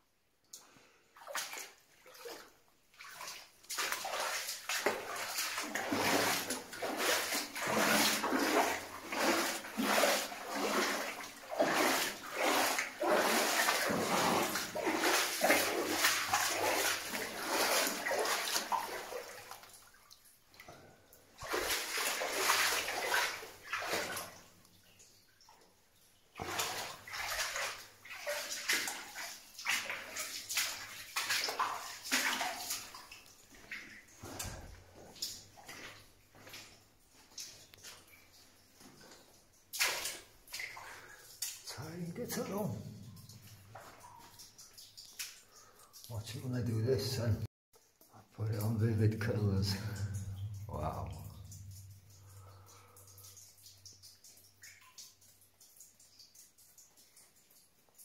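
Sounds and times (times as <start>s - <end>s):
boots splashing through water: 1.2s - 20.6s, 21.4s - 24.5s, 26.4s - 45.8s.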